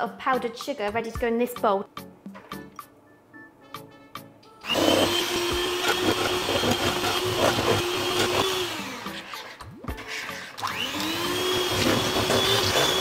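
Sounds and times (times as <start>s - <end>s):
electric hand mixer whining: 4.6s - 13.0s.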